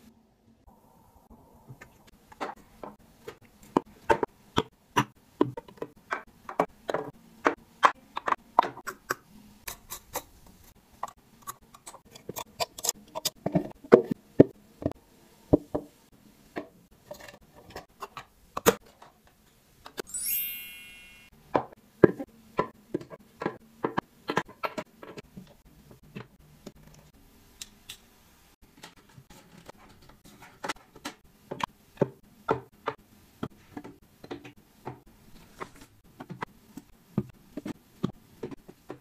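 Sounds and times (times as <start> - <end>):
bright shimmering chime: 20.1 - 21.3.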